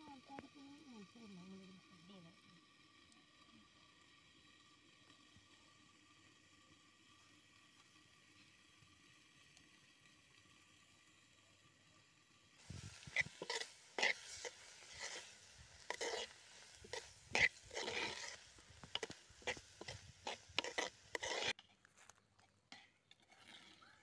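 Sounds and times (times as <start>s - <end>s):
onions stirred in clay pot: 12.6s - 24.0s.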